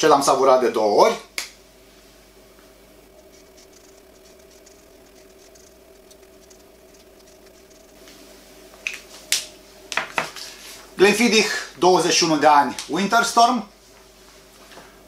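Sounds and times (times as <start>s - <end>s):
steady low hum: 0.0s - 15.0s
pen scratching on paper: 3.3s - 8.0s.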